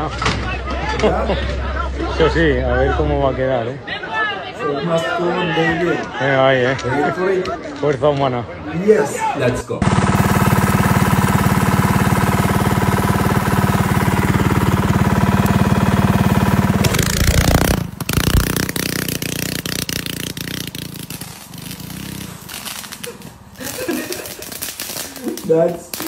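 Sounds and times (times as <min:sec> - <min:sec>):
go-kart engine running fast: 0:09.8 - 0:23.9
engine crackling pops: 0:09.8 - 0:26.0.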